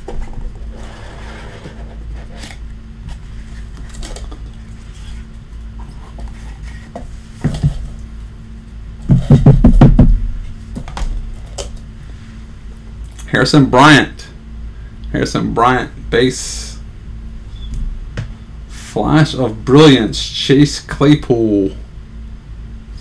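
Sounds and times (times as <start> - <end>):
steady low hum: 0.0 - 23.0
box knocking on table: 9.1 - 10.2.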